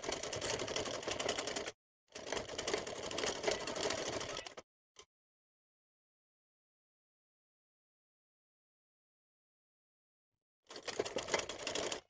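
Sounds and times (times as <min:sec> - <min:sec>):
sewing machine running: 0:00.0 - 0:04.6, 0:10.7 - 0:12.0.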